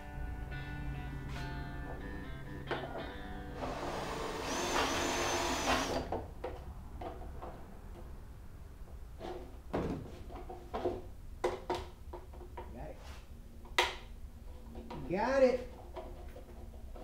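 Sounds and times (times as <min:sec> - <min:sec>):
power drill boring plastic: 0:03.6 - 0:06.1.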